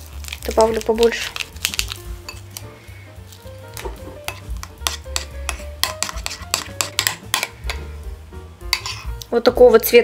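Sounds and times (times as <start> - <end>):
quiet background music: 0.0 - 10.0
spoon scraping ceramic bowl: 4.2 - 7.9, 8.7 - 9.2.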